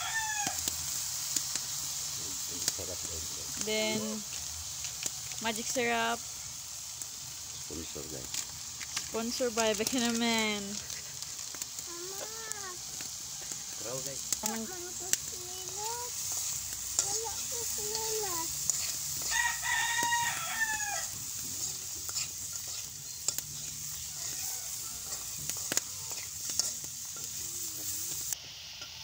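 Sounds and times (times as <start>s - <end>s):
rooster crowing: 0.0s - 1.0s, 13.2s - 14.6s, 19.2s - 21.4s, 23.8s - 26.3s
grubs sizzling in a wok: 0.0s - 29.0s
chickens calling: 12.8s - 28.4s
metal spoon scraping a pan: 12.9s - 29.0s.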